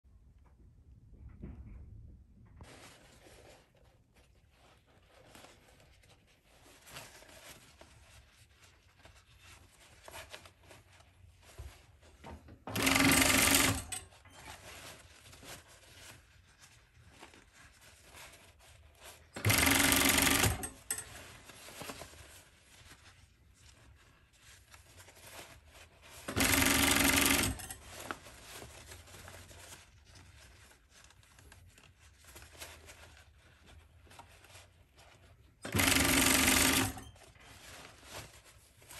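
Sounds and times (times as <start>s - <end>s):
fabric handling noises: 2.6s - 38.9s
sewing machine running: 12.7s - 14.0s, 19.4s - 21.0s, 26.3s - 27.8s, 35.6s - 37.2s.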